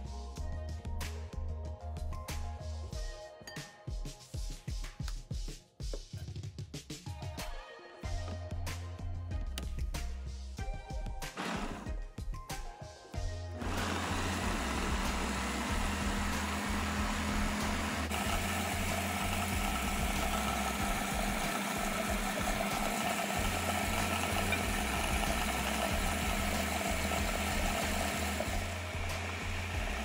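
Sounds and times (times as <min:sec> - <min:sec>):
food processor whirring: 0:11.3 - 0:12.0, 0:13.6 - 0:30.0.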